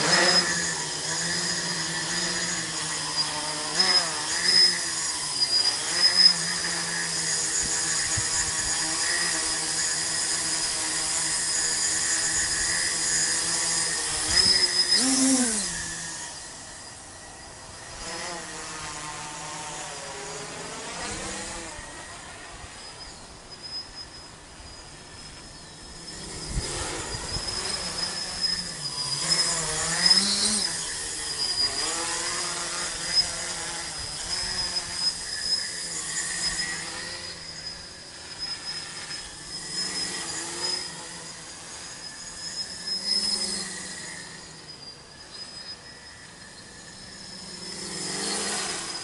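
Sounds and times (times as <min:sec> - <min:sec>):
drone motors whirring: 0:00.0 - 0:49.0
high whine: 0:09.4 - 0:19.1, 0:20.0 - 0:49.0.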